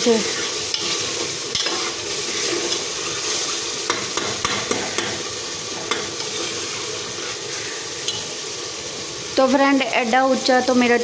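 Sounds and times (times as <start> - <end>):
masala sizzling in oil: 0.0 - 11.0
spoon scraping against pot: 0.3 - 8.4.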